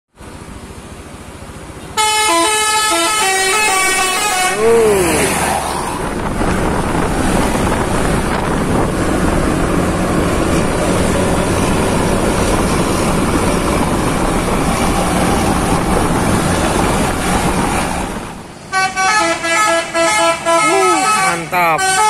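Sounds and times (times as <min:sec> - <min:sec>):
engine drone and road noise: 0:00.1 - 0:22.0
wind buffeting microphone: 0:05.5 - 0:18.5.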